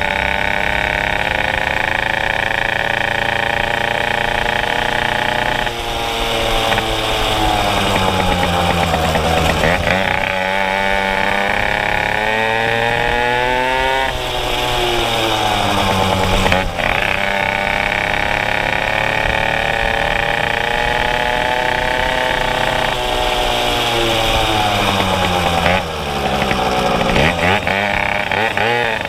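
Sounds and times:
moped engine revving: 0:00.0 - 0:29.0.

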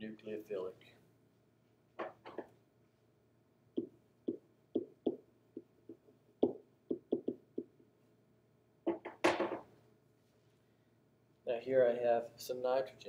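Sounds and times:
pen tapping on whiteboard: 0:02.0 - 0:02.5, 0:03.8 - 0:07.7, 0:08.9 - 0:09.6.

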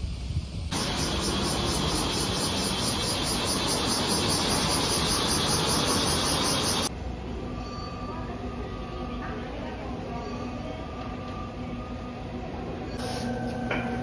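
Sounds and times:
cicadas buzzing: 0:00.0 - 0:06.9.

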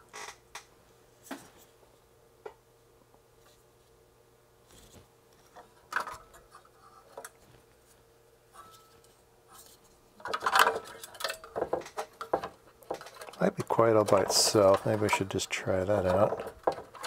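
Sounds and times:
sheet metal clatter and rattle: 0:10.2 - 0:17.0.

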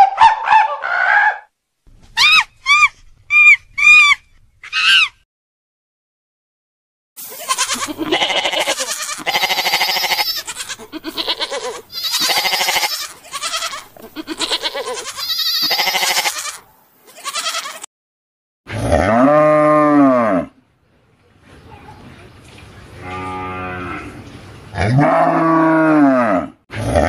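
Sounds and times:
sheep and lambs bleating: 0:07.2 - 0:17.9
cow mooing: 0:18.7 - 0:20.5, 0:23.0 - 0:24.2, 0:24.8 - 0:27.0.

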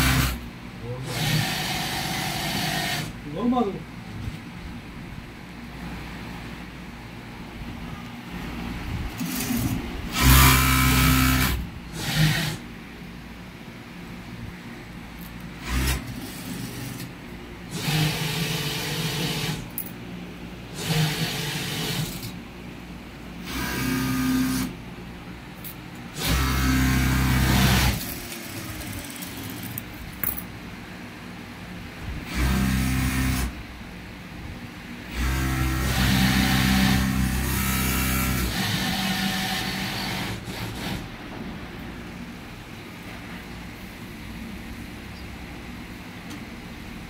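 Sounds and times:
industrial sewing machine running: 0:00.0 - 0:03.5, 0:09.2 - 0:12.6, 0:15.6 - 0:17.1, 0:17.7 - 0:19.7, 0:20.7 - 0:22.4, 0:23.4 - 0:24.7, 0:26.1 - 0:29.8, 0:32.2 - 0:33.6, 0:35.1 - 0:41.2.

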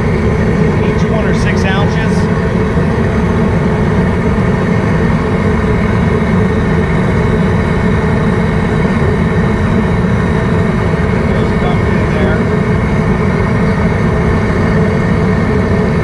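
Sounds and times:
gas burner roaring: 0:00.0 - 0:16.0.

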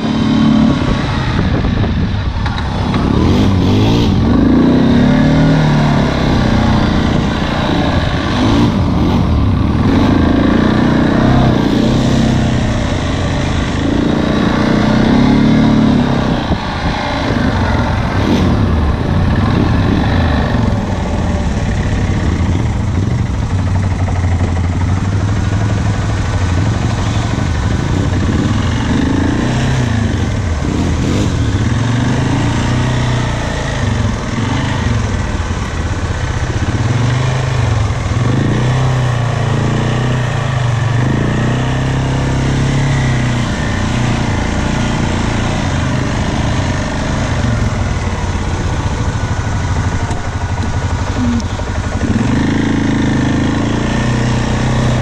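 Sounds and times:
atv engine revving: 0:00.0 - 0:55.0.

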